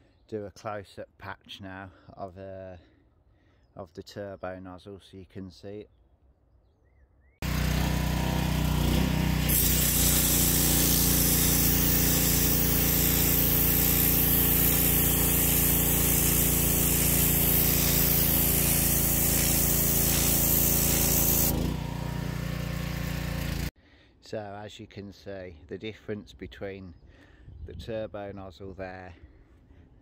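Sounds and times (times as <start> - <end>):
petrol engine running: 7.4 - 12.0, 20.7 - 23.7
water jet hissing: 9.4 - 21.8.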